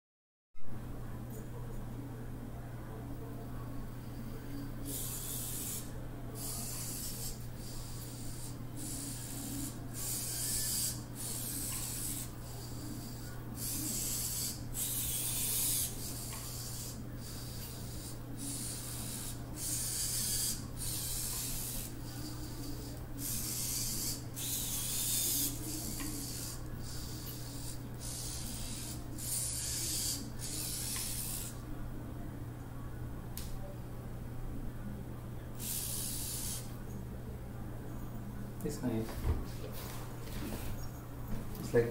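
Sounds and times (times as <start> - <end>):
robot servo motors whirring: 4.9 - 31.6, 35.6 - 36.7.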